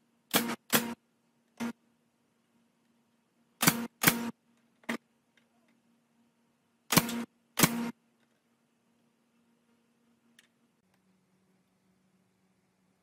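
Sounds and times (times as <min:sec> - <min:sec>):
nail gun firing: 0:00.3 - 0:01.0, 0:03.6 - 0:04.3, 0:06.9 - 0:07.9
faint low hum: 0:00.9 - 0:13.0.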